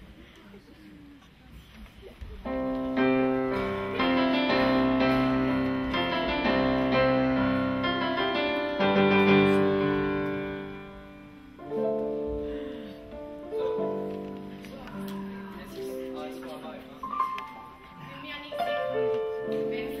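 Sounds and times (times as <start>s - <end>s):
slow piano chords: 2.4s - 20.0s.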